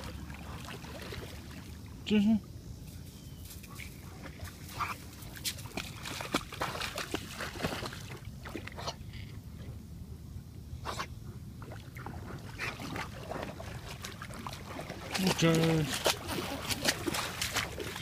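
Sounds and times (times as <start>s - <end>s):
dog splashing in water: 0.0s - 1.8s, 4.1s - 8.8s, 11.6s - 18.0s.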